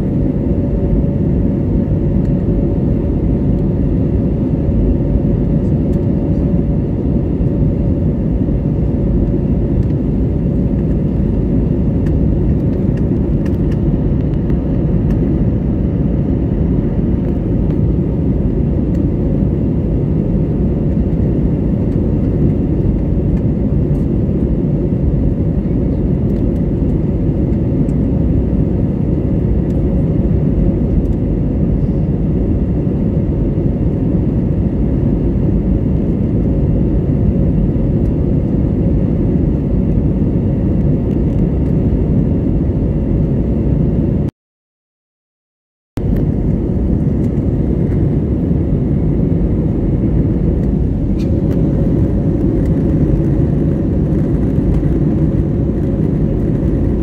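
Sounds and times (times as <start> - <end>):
jet engines rumbling: 0.0 - 44.3, 46.0 - 57.0
steady hum: 46.0 - 57.0.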